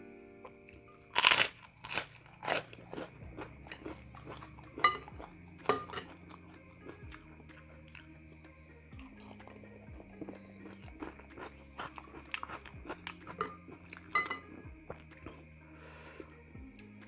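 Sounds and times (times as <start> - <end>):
faint background music: 0.0 - 17.0
crunching and chewing food: 0.4 - 17.0
fork scraping a glass bowl: 1.8 - 6.4, 10.2 - 14.6.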